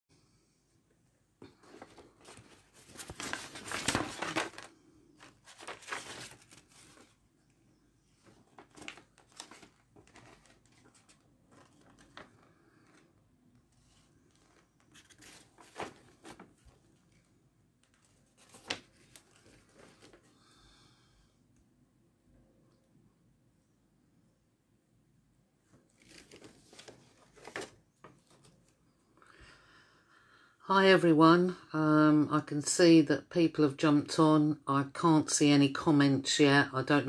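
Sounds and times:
scratchy rustling handling noise: 0:01.6 - 0:07.2, 0:08.2 - 0:20.3.

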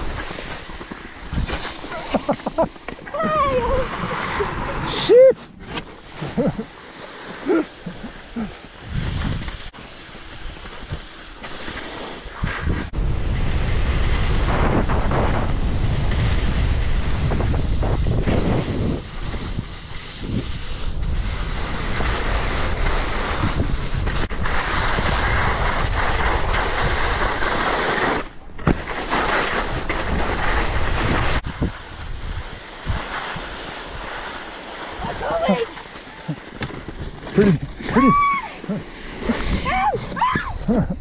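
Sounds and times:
skis scraping over snow: 0:00.0 - 0:41.0
wind buffeting microphone: 0:12.4 - 0:27.5, 0:29.7 - 0:34.2.

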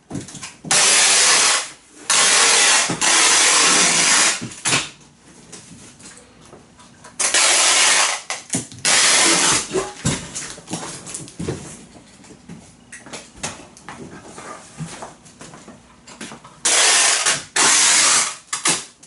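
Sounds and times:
packing tape ripping off roll: 0:00.4 - 0:05.0, 0:07.2 - 0:11.4, 0:16.6 - 0:19.0.

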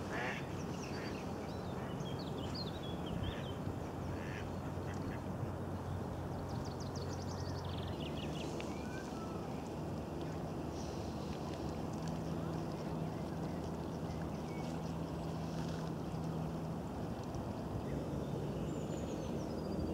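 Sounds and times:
ducks quacking: 0:00.1 - 0:00.4.

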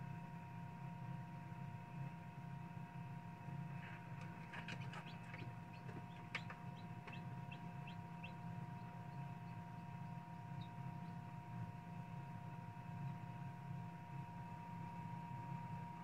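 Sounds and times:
incubator hum: 0:01.6 - 0:16.0
chick peeping: 0:03.7 - 0:11.3.

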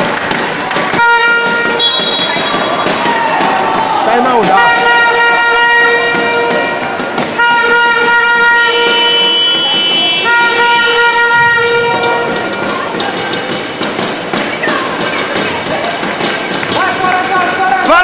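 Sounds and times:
crowd noise: 0:00.0 - 0:18.0
short sharp beats: 0:00.0 - 0:18.0
higher-pitched horn: 0:01.0 - 0:02.6, 0:04.6 - 0:12.4
air horn blasts: 0:01.0 - 0:02.8, 0:04.5 - 0:12.4.

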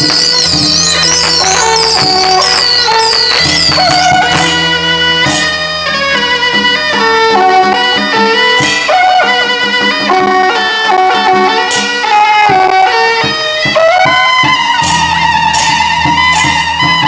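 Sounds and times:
cymbal crashes: 0:00.0 - 0:06.8
reedy wind instrument melody: 0:00.0 - 0:17.0
steady drum beat: 0:00.0 - 0:17.0.

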